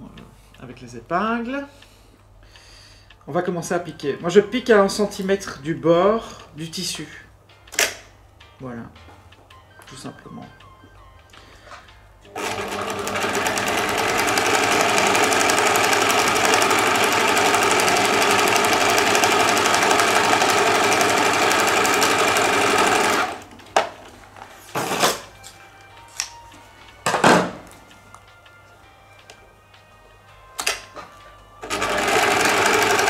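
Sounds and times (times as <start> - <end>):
electric sewing machine stitching: 12.3 - 23.5, 31.6 - 33.0.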